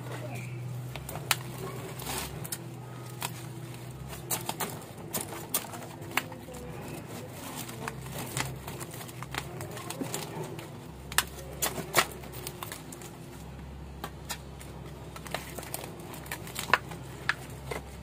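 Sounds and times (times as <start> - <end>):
low steady hum: 0.0 - 18.0
plant leaves snapping: 7.6 - 13.1, 14.0 - 17.7.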